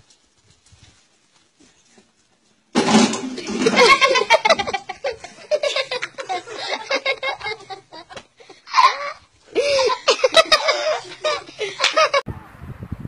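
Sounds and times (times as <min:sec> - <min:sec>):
people laughing hard: 0:03.4 - 0:12.2.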